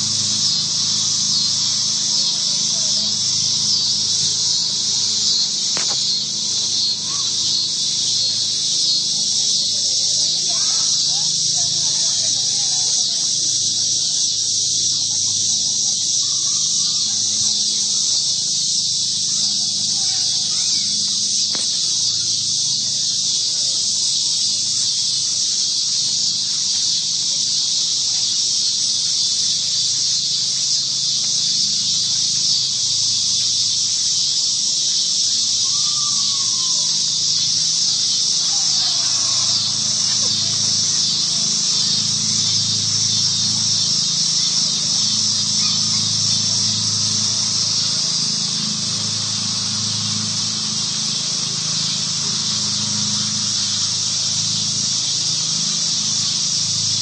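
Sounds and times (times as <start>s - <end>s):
faint gliding calls: 0.0s - 14.5s, 35.5s - 57.0s
insects shrilling: 0.0s - 57.0s.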